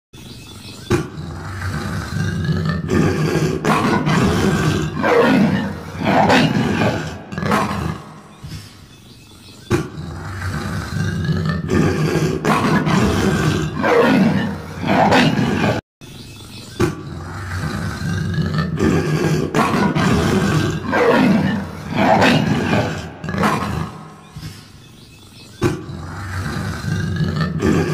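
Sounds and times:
big cat roaring and growling: 0:00.9 - 0:08.3, 0:09.7 - 0:15.8, 0:16.8 - 0:24.6, 0:25.6 - 0:27.9.

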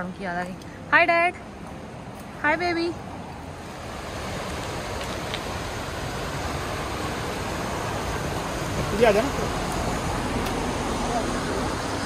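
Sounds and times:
river flowing over rocks: 0:03.0 - 0:12.0.

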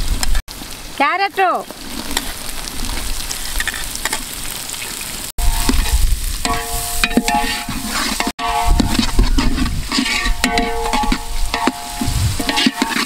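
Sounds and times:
vegetables sizzling in oil: 0:00.0 - 0:13.0
metal spoon scraping pot: 0:05.4 - 0:13.0.

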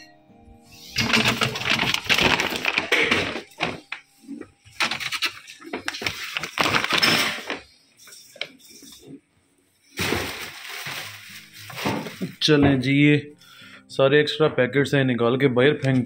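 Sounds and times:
plastic bags crinkling: 0:01.0 - 0:09.1, 0:09.8 - 0:12.9.

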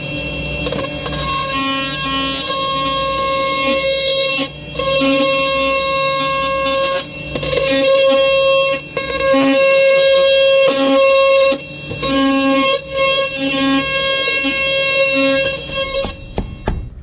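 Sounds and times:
multi-tool cutting drywall: 0:00.0 - 0:17.0.

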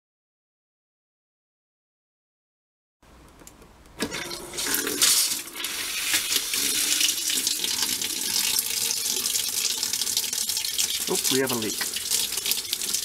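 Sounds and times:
faucet water sputtering and running: 0:04.0 - 0:13.0.

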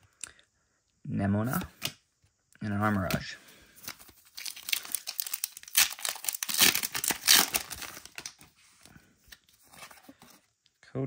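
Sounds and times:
wrapper tearing and crinkling: 0:03.9 - 0:08.4.

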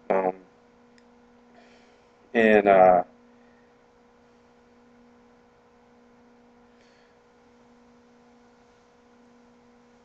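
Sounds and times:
faint steady hum: 0:00.0 - 0:10.0.

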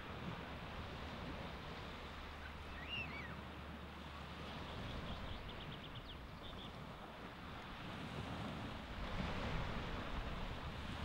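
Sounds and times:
surf washing onto beach: 0:07.3 - 0:11.0.

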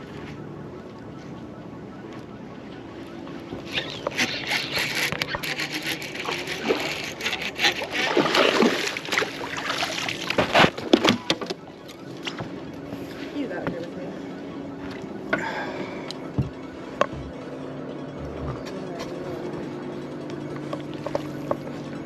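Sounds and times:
fish splashing at water surface: 0:07.7 - 0:10.6.

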